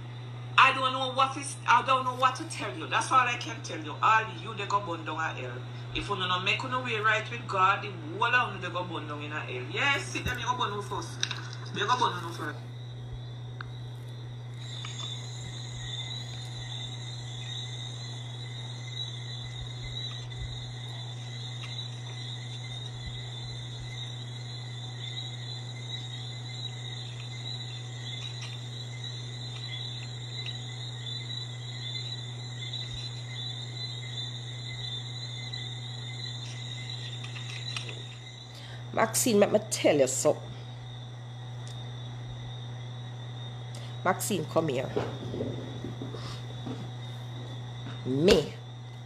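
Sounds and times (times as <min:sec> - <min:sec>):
crickets chirping: 0:00.0 - 0:49.0
steady low hum: 0:00.0 - 0:49.0.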